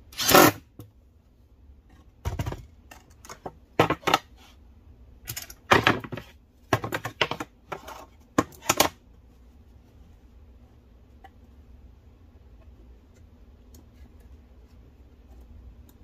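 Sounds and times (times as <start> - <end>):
metal parts knocking on plywood: 5.3 - 9.0.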